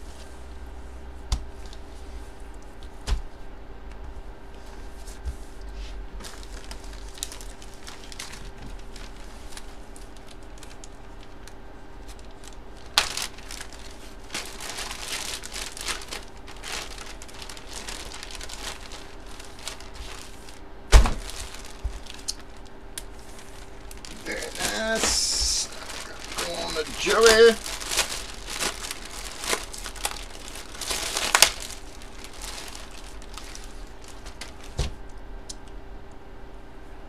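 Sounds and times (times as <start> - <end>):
plastic bag crinkling: 6.2 - 35.1.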